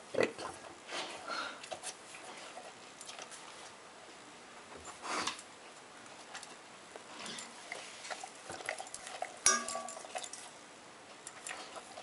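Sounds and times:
metal bowl clanging: 9.3 - 10.4
clinks against metal bowl: 9.4 - 10.4.

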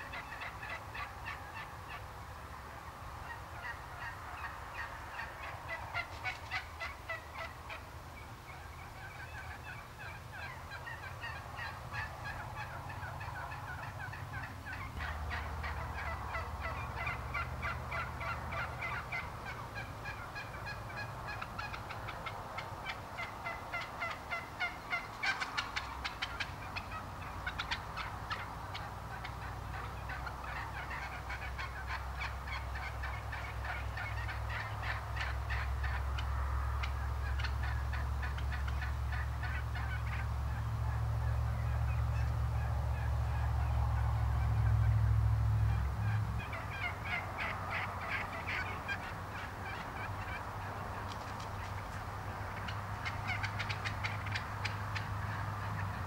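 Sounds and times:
low steady rumble: 0.0 - 56.0
wild turkeys calling: 0.0 - 56.0.

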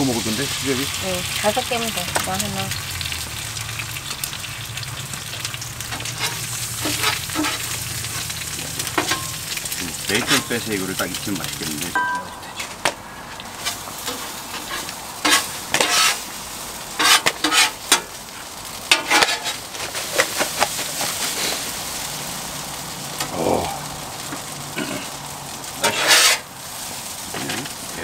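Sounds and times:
food sizzling on a griddle: 0.0 - 28.0
metal spatulas scraping: 6.0 - 7.7, 13.6 - 16.2, 17.0 - 18.0, 18.9 - 21.6, 25.8 - 26.4.

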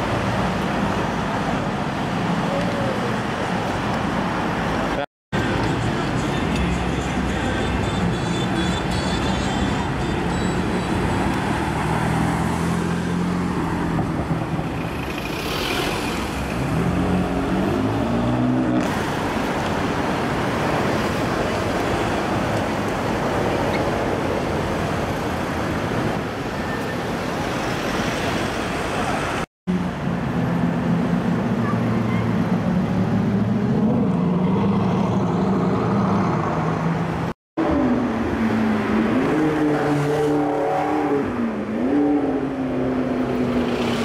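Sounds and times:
cars driving past: 3.2 - 44.0.

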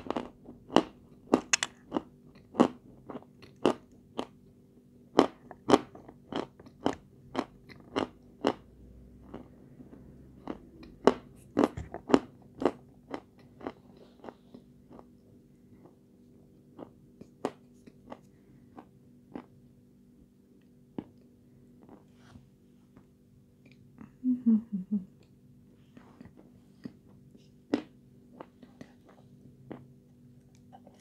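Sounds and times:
chewing crunchy sweet: 0.0 - 4.4, 5.1 - 19.6, 26.0 - 31.0.

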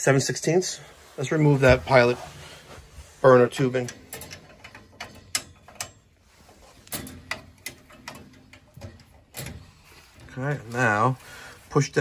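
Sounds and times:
wrenches clicking on metal fitting: 3.6 - 6.1.

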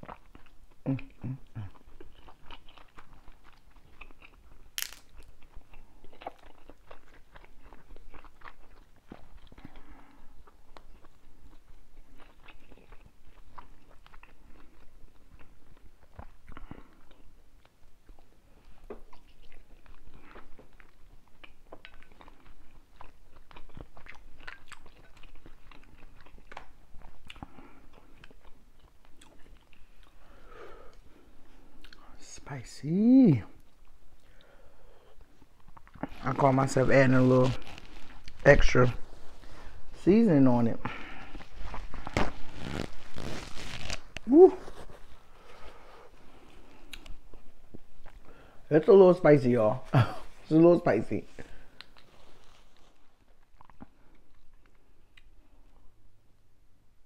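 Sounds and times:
person chewing and lip smacking: 0.0 - 32.2, 33.5 - 36.5, 46.3 - 48.3, 51.6 - 56.0.

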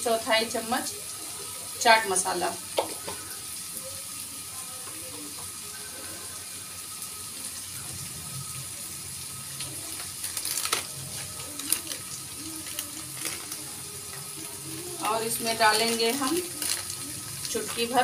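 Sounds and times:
vegetables sizzling in oil: 0.0 - 18.0.

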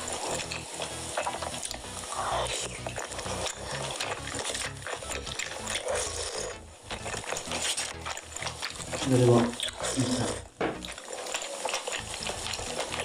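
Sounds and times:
chewing: 0.0 - 13.0.

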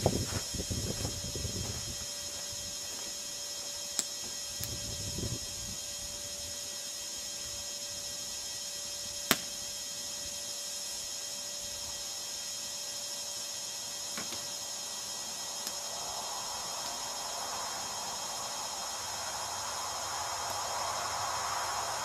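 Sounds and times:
faint steady hum: 0.0 - 22.0
insects chirring: 0.0 - 22.0
steady hiss: 0.0 - 22.0
sharp click: 9.3 - 9.5.

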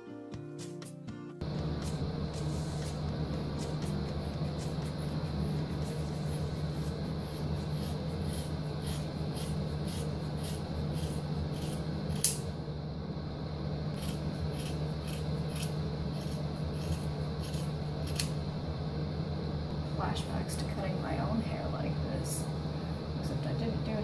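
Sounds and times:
scissors snipping hair: 7.8 - 12.5, 14.0 - 18.4.

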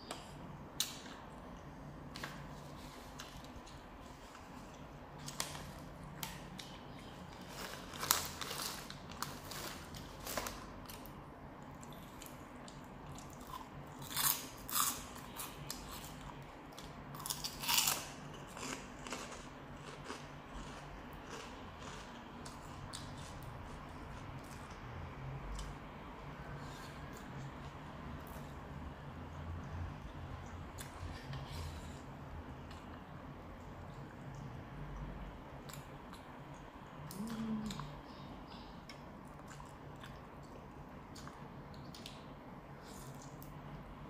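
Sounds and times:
person chewing food: 6.2 - 24.9, 37.1 - 42.2.

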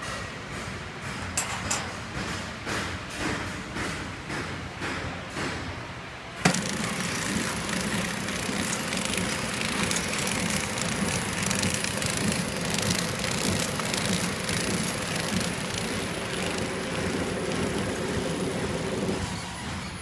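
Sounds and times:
sharp machine click: 6.4 - 18.0
packaging machine clattering: 6.5 - 19.4.

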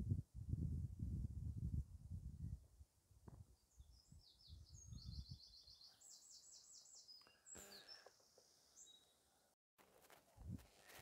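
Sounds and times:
songbird chirps and trill: 3.5 - 9.3.

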